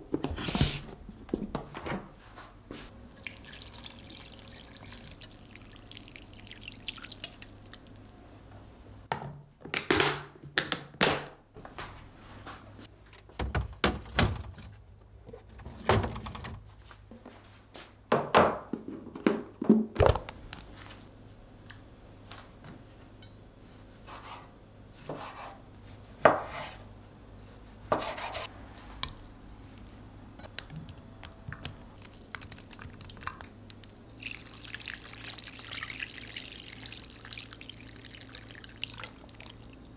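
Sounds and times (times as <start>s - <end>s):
liquid pouring through strainer: 3.1s - 8.1s, 34.1s - 39.9s.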